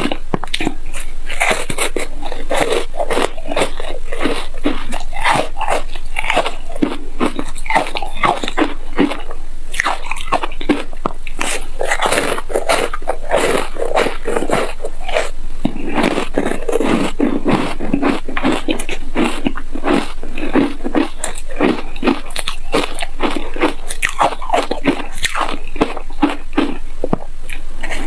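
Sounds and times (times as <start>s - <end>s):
chewing ice crunches: 0.0s - 28.0s.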